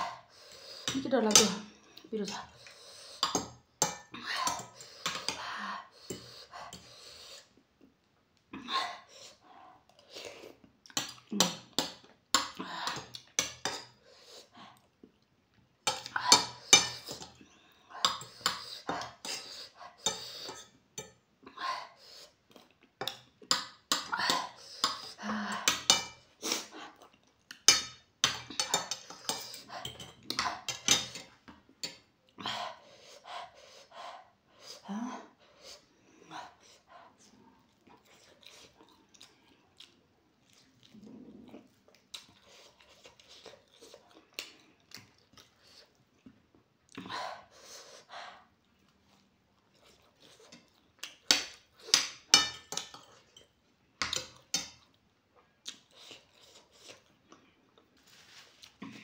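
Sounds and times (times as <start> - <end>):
cutlery scraping on ceramic plate: 15.9 - 17.4, 18.0 - 21.2, 27.7 - 32.0, 51.3 - 54.8.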